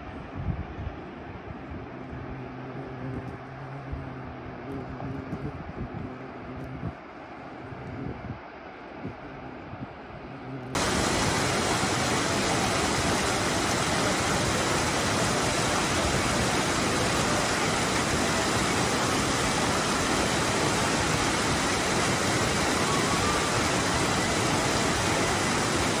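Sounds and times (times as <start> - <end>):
stream rushing over rocks: 10.8 - 26.0.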